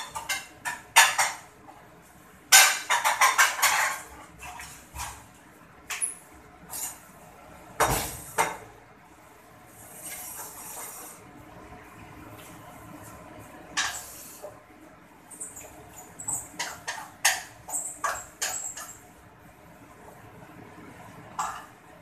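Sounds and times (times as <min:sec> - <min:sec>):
pots and dishes clinking: 0:00.0 - 0:01.5, 0:02.5 - 0:05.2, 0:13.7 - 0:14.2, 0:15.4 - 0:19.1, 0:21.4 - 0:21.8.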